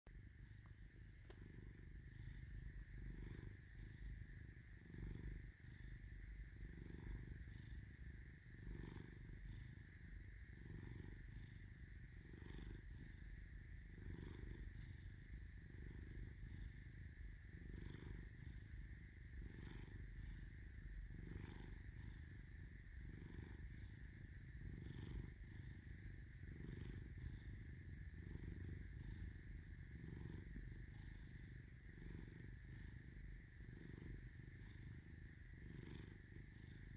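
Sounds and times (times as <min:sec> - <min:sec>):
cat purring: 0:00.1 - 0:36.9.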